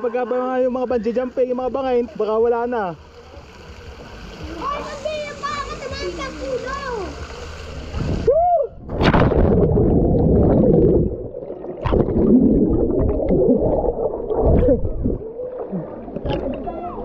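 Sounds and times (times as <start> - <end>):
water splash: 8.9 - 16.7
muffled underwater rushing bubbles: 8.9 - 17.0.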